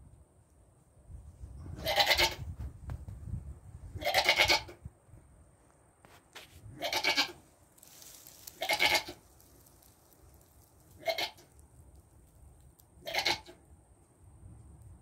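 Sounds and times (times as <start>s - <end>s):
goat bleating loudly: 1.8s - 2.4s, 4.0s - 4.7s, 6.8s - 7.4s, 8.6s - 9.2s, 11.0s - 11.4s, 13.0s - 13.6s.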